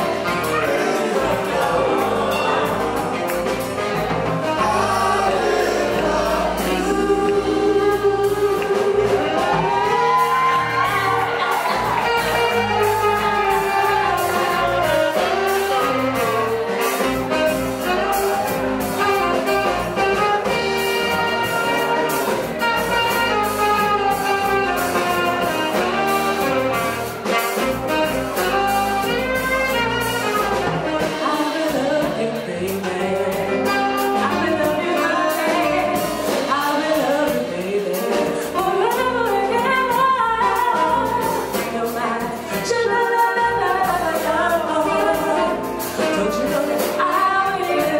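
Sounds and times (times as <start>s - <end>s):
bass guitar: 0.0s - 47.9s
drum kit: 0.0s - 47.9s
saxophone: 0.0s - 47.9s
woman singing: 4.5s - 16.9s, 29.0s - 47.9s.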